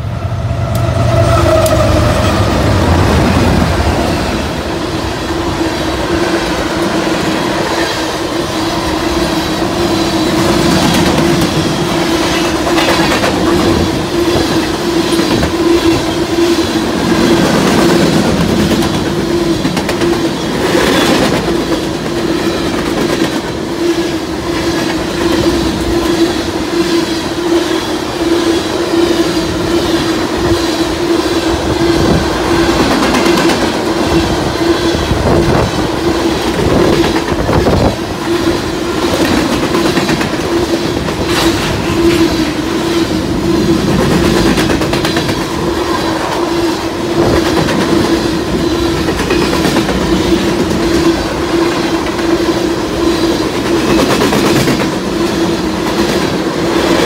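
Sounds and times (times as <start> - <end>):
freight train rumbling past: 0.0 - 57.0
wheels clacking over rail joints: 8.9 - 16.4.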